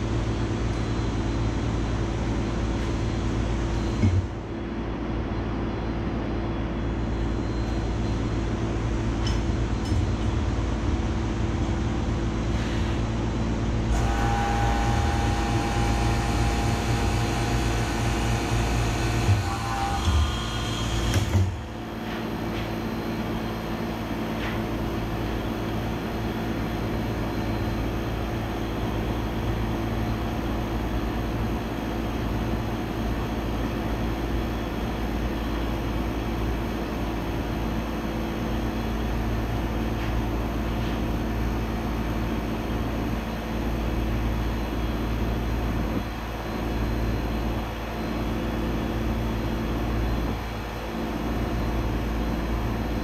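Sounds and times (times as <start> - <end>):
vacuum pump droning: 7.4 - 33.4.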